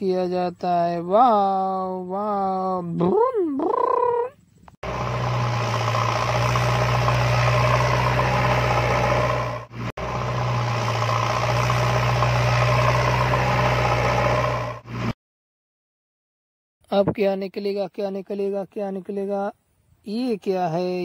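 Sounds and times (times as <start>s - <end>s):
heavy engine running: 4.8s - 15.2s.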